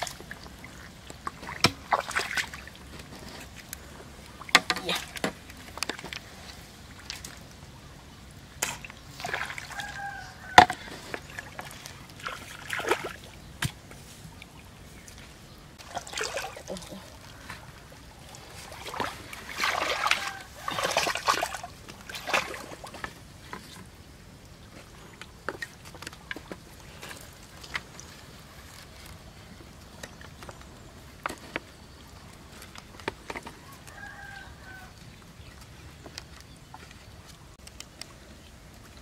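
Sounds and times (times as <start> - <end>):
rustling and scraping: 2.5 - 7.5, 8.6 - 12.5, 24.7 - 34.2
bamboo knocking and clicking: 4.4 - 6.1.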